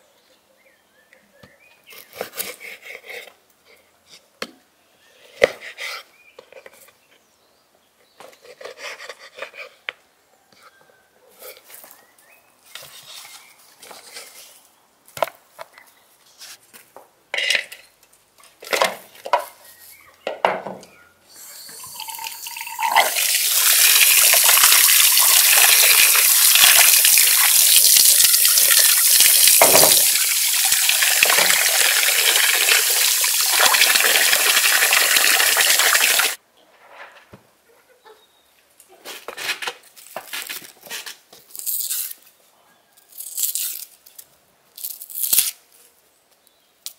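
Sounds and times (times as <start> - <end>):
tap water splashing into basin: 22.8 - 36.4.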